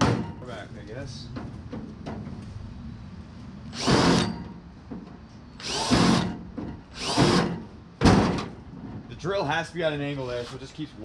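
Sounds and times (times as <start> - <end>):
electric drill on sheet steel: 3.7 - 4.4, 5.6 - 7.6.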